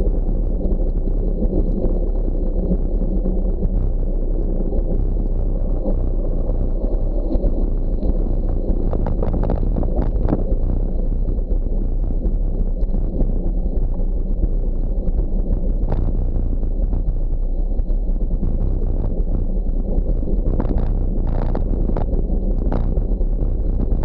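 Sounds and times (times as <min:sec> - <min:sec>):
wind rushing over microphone: 0:00.0 - 0:24.0
sharp clicks and rattles: 0:18.2 - 0:24.0.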